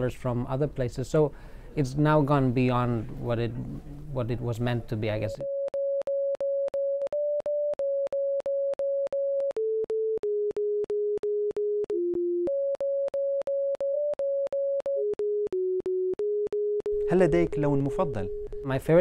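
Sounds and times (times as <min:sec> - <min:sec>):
electronic tone beeping: 0:05.1 - 0:19.0.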